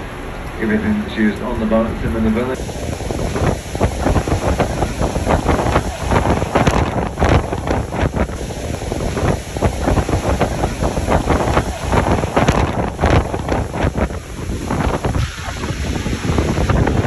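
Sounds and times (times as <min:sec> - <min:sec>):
wind buffeting microphone: 0:00.6 - 0:17.0.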